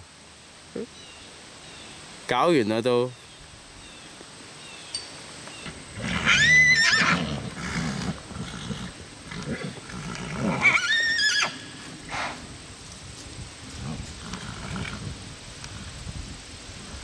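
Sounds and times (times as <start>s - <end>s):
horses whinnying: 5.6s - 12.5s, 13.7s - 15.8s.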